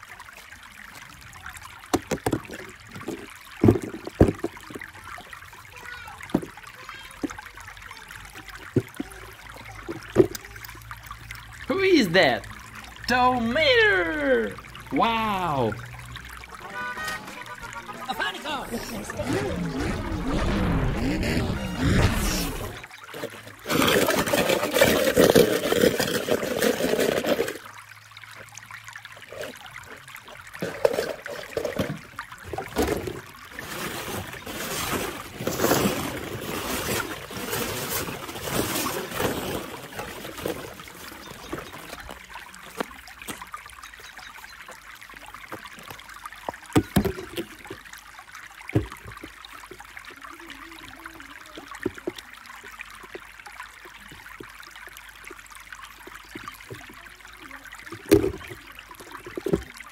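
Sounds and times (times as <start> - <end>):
water splashing and trickling: 0.0 - 59.9
plastic balls rustling and clattering: 2.0 - 5.0, 21.4 - 27.7, 30.6 - 42.1.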